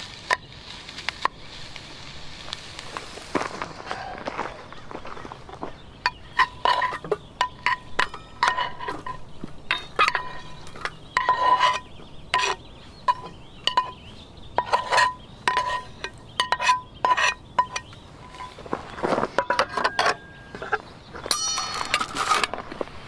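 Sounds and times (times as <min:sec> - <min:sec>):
metal spatula scraping pan: 0:06.1 - 0:14.0, 0:14.6 - 0:18.6
quick ringing metal clinks: 0:21.3 - 0:22.2.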